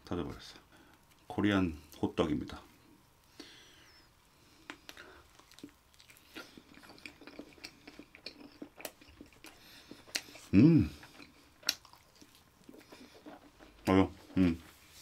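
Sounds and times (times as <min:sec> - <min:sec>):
person chewing: 0:04.6 - 0:14.6
wet mouth clicks: 0:11.0 - 0:12.0.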